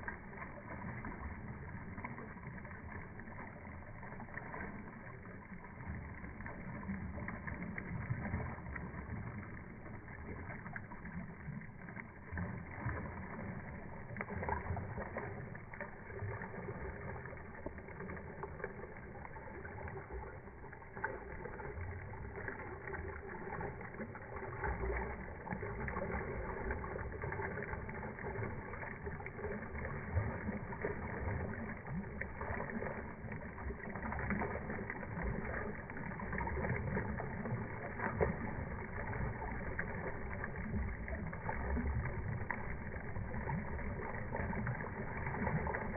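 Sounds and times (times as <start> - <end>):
floodwater rushing across pavement: 0.0 - 45.9.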